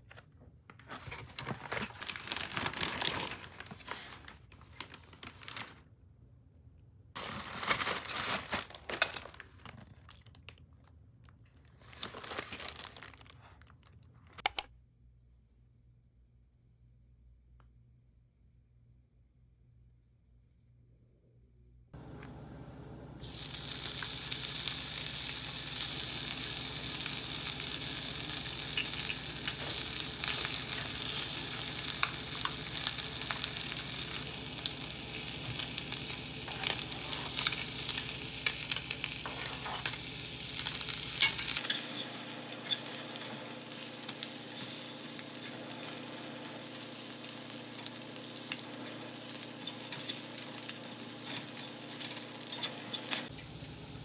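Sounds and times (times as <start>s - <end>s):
chicken sizzling in oil: 23.2s - 54.0s.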